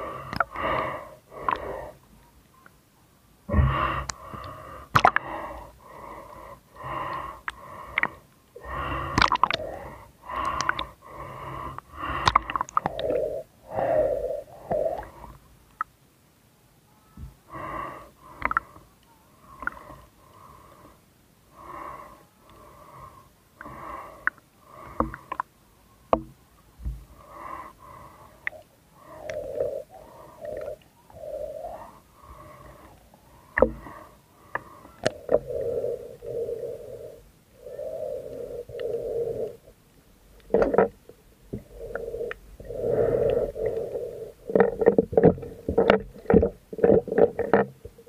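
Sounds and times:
muffled wheezy breathing: 3.5s - 15.4s, 27.1s - 39.8s, 41.6s - 47.6s.

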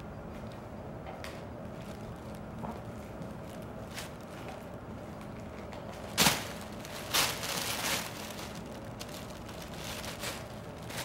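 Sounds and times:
plastic bag crinkling: 1.7s - 11.0s.

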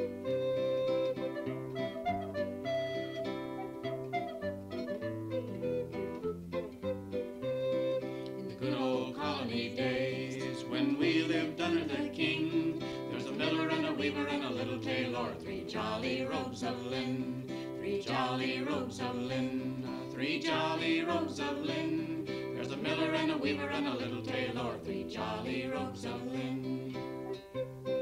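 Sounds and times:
song with singing: 8.4s - 27.5s.

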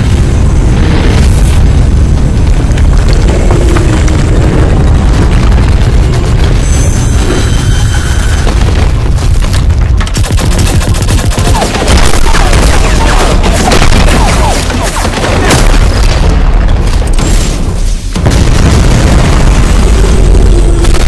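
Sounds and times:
heavy low rumble: 0.0s - 10.9s, 15.2s - 21.0s
booming explosions: 0.0s - 21.0s.

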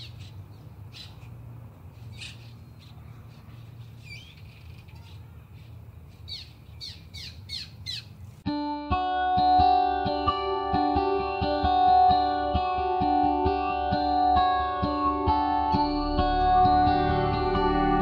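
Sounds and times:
birds chirping: 0.0s - 8.4s
steady low hum: 15.6s - 18.0s.

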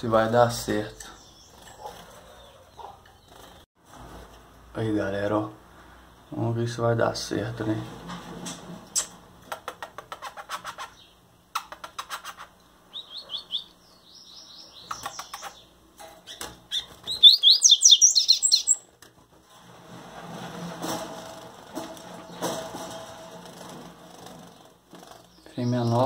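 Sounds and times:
bird song phrase: 0.1s - 1.7s, 12.9s - 15.7s, 17.1s - 18.8s, 25.3s - 26.0s
bird chirps: 1.0s - 3.4s, 12.9s - 18.9s
clicks and flutters: 19.0s - 25.4s.

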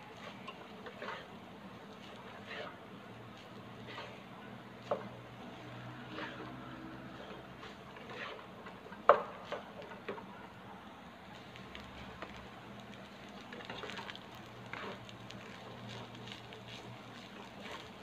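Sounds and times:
spatula scraping and tapping pan: 7.1s - 10.2s.

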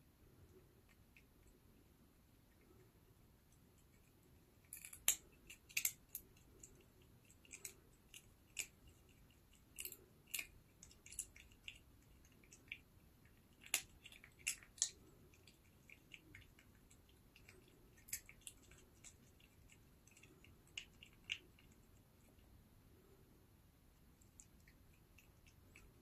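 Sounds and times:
kitten cracking seed shells: 3.5s - 22.5s.

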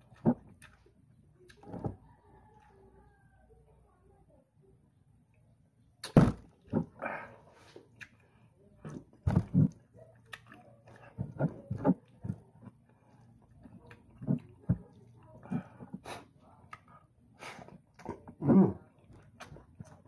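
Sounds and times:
person chewing: 0.0s - 2.0s, 6.0s - 20.0s.

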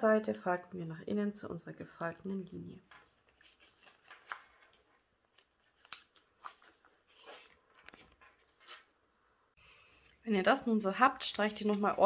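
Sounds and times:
paper rustling and crinkling: 2.8s - 9.0s, 11.2s - 12.0s.

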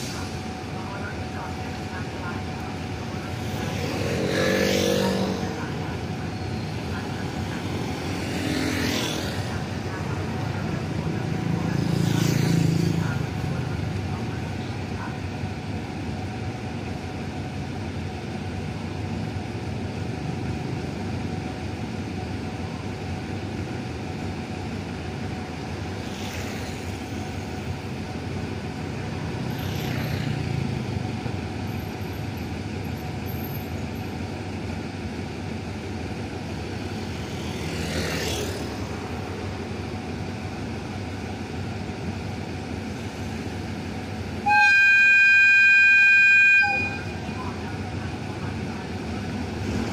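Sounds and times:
motorcycles and cars passing: 3.2s - 14.4s, 25.8s - 27.8s, 28.9s - 31.2s, 36.6s - 39.6s
locomotive engine idling: 38.6s - 49.9s.

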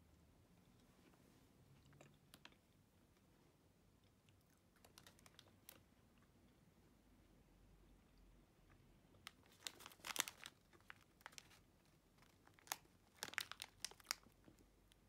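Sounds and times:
faint packaging crinkling: 4.7s - 5.9s, 9.2s - 15.0s.

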